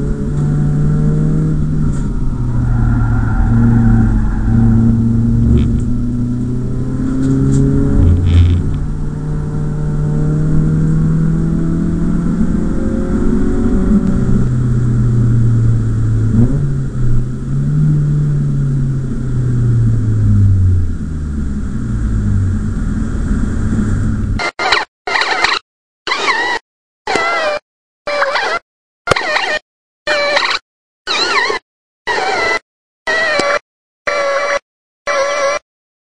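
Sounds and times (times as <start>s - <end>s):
car engine revving through gear changes: 0.0s - 24.4s.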